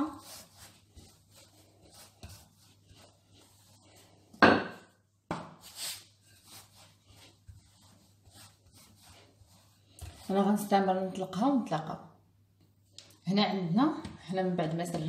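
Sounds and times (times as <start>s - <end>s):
rolling pin rolling dough: 0.0s - 11.6s.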